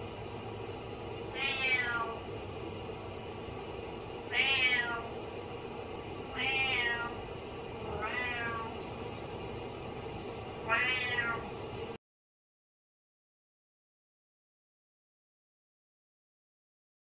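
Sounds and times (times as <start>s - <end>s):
cat meowing: 1.3s - 2.2s, 4.3s - 5.1s, 6.3s - 7.2s, 7.9s - 8.8s, 10.6s - 11.4s.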